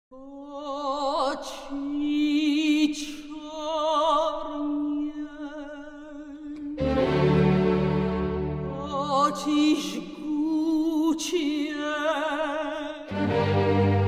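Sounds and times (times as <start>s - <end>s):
person singing operatically: 8.6s - 13.5s.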